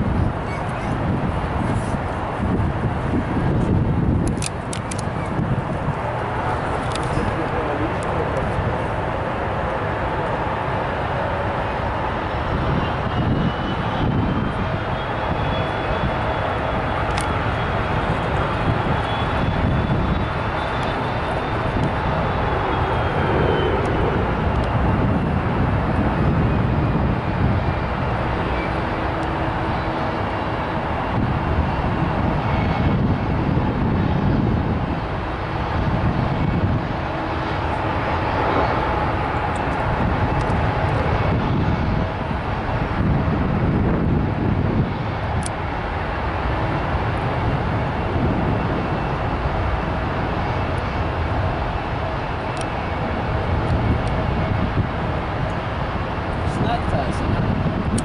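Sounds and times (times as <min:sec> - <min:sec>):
faint jet whine: 0:00.0 - 0:58.0
jet engines rumbling at takeoff: 0:00.0 - 0:58.0.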